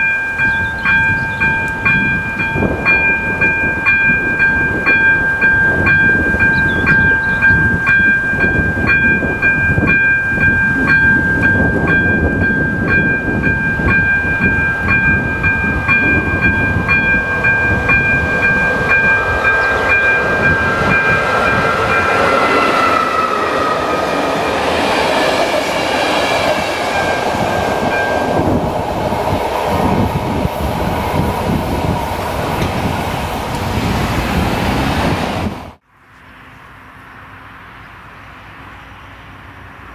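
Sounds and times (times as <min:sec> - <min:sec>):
level crossing bell ringing: 0:00.0 - 0:22.3, 0:26.8 - 0:28.6
train rumbling: 0:00.0 - 0:35.8.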